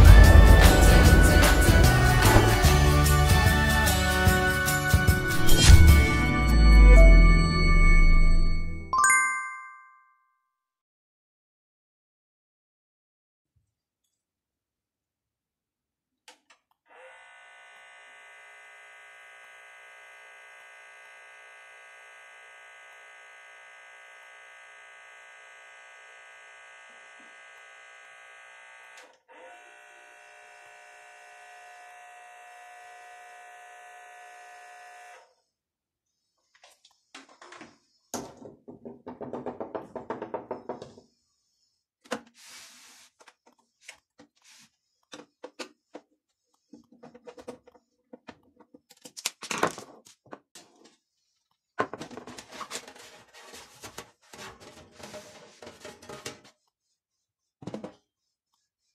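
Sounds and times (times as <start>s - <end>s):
small motor whining: 16.9s - 35.5s.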